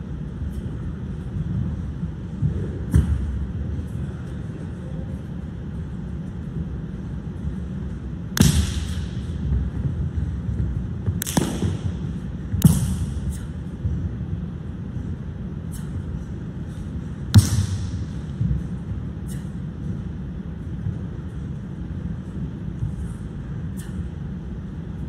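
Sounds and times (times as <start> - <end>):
low steady rumble: 0.0 - 25.0
sharp smacks on mat: 11.2 - 11.8, 17.3 - 18.0.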